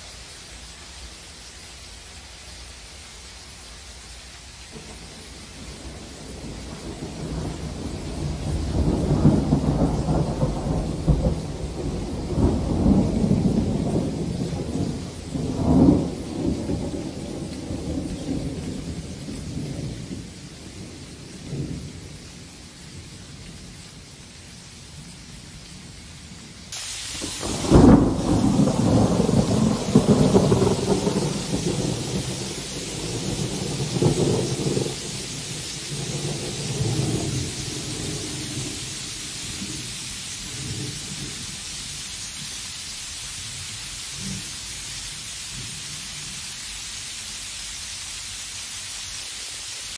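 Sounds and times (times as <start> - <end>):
hiss of falling sleet: 0.0 - 49.9
sharp crack of thunder: 4.7 - 22.5, 26.8 - 42.4, 43.4 - 46.4
thunder rumbling: 4.7 - 24.1, 25.4 - 46.4.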